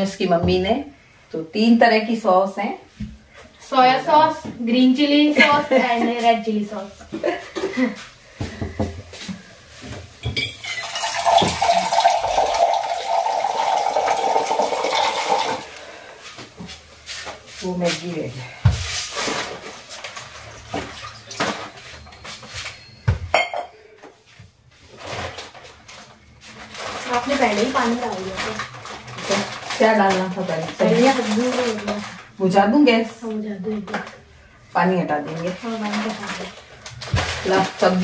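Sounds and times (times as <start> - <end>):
kitchen utensils and pans clinking: 10.2 - 13.8
water pouring: 10.4 - 15.8.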